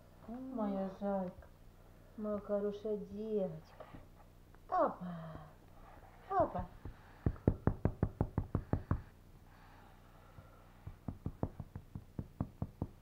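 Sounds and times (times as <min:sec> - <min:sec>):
rapid knocking from kitten play: 0:06.8 - 0:09.1, 0:10.8 - 0:13.0.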